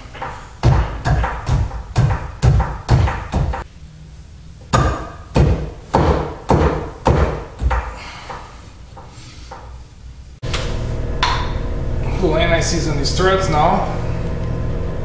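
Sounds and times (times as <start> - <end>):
thumps with metallic ring: 0.1 - 3.6, 11.2 - 11.6.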